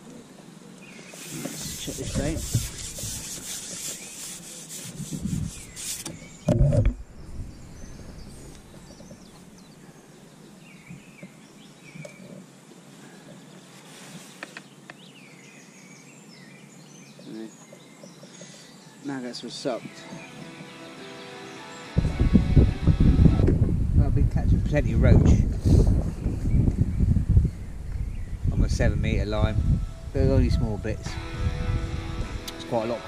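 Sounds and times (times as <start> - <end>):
small birds chirping: 0.0 - 23.2, 26.2 - 29.2
clothing rubbing against microphone: 1.0 - 6.5, 13.6 - 14.7.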